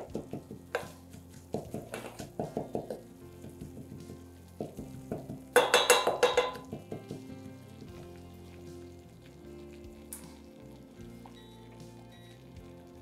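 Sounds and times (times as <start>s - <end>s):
wooden spoon scraping saucepan: 0.0s - 5.4s
roux sizzling: 0.0s - 13.0s.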